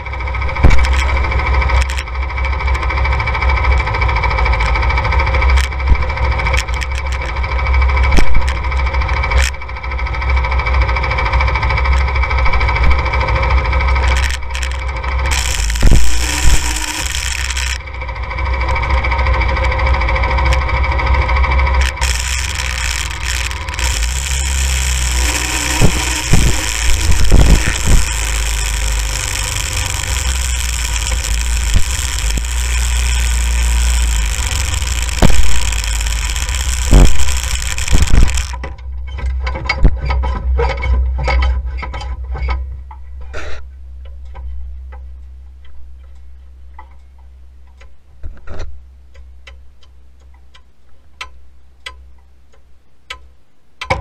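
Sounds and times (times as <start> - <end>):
go-kart engine rumbling: 0.0 - 38.8
clicks and ticks: 0.6 - 2.1, 5.5 - 7.4, 14.0 - 17.8, 21.8 - 38.7.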